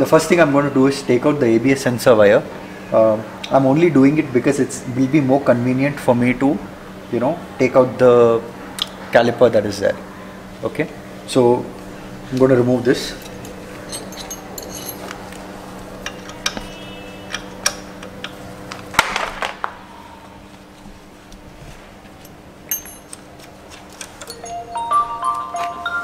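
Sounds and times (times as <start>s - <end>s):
steady low hum: 0.0s - 19.0s
chime-like musical tones: 24.3s - 26.0s.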